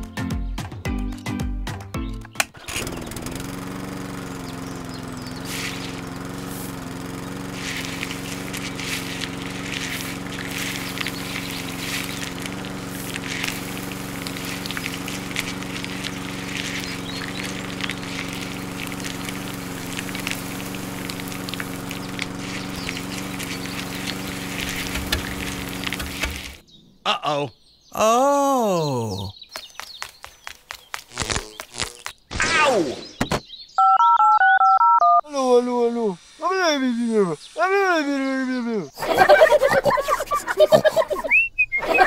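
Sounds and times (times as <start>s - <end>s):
small electric motor running: 2.6s - 26.6s, 30.4s - 32.2s
beans and sand rattling on mesh: 3.6s - 26.6s.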